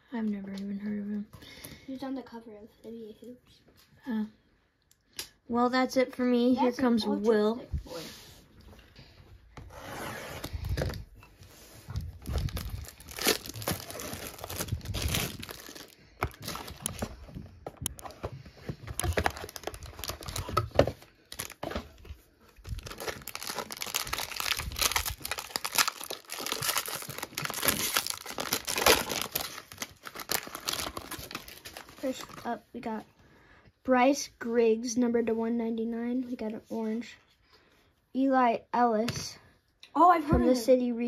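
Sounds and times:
foil pack crinkling: 12.0 - 17.2, 18.9 - 21.7, 22.6 - 32.4.

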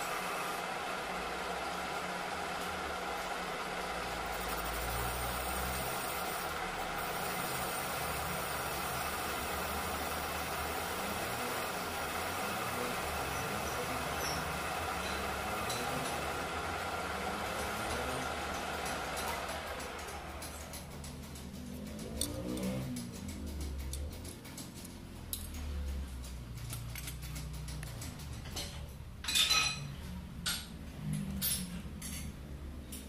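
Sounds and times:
metal lathe running: 0.0 - 24.0.

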